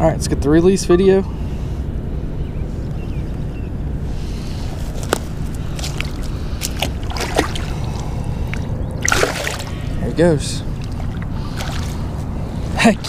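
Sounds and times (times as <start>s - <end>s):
low background rumble: 0.0s - 13.0s
fish splashing in water: 5.5s - 10.0s, 10.7s - 12.2s.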